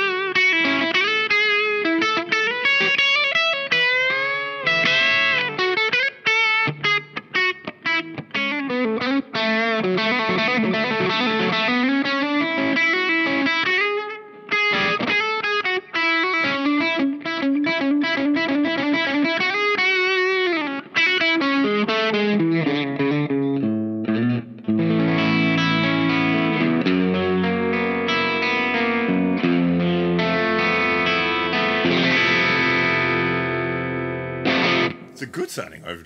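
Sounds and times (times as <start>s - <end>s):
overdriven electric guitar: 0.0s - 35.2s.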